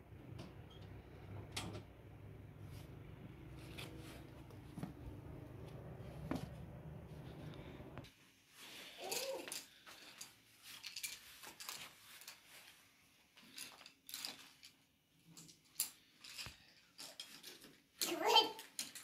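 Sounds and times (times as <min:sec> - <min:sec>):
pencils clicking and rattling: 0:08.9 - 0:12.8, 0:13.4 - 0:19.0.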